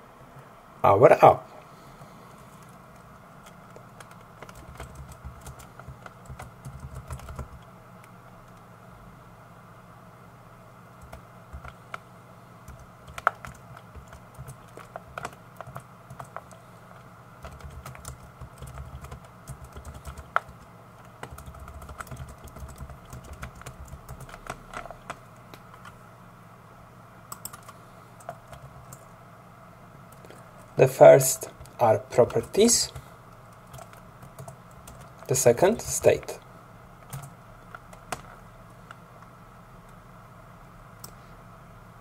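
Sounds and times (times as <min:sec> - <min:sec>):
faint steady hum: 0:00.0 - 0:42.0
computer keyboard typing: 0:03.4 - 0:08.6, 0:11.0 - 0:12.0, 0:12.6 - 0:26.0, 0:27.3 - 0:29.1, 0:31.5 - 0:36.2, 0:37.0 - 0:39.0.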